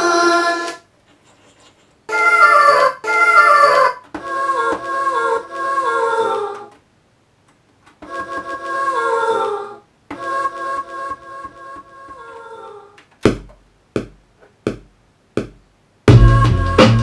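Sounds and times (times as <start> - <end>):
chopped choir-like vocal sample: 0.0 - 0.9, 2.1 - 6.8.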